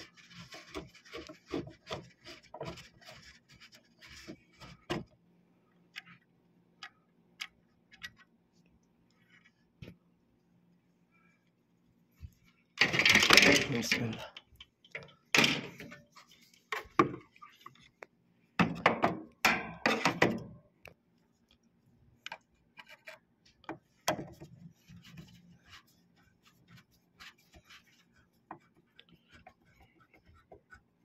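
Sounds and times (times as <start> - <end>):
knocks and clatter of parts: 12.8 - 16.0.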